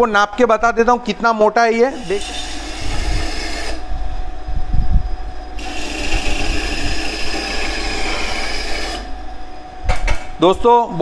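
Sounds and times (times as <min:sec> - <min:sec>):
band saw running: 0:01.8 - 0:03.9, 0:05.6 - 0:09.3
blade hissing through wood: 0:01.9 - 0:03.8, 0:05.6 - 0:09.2.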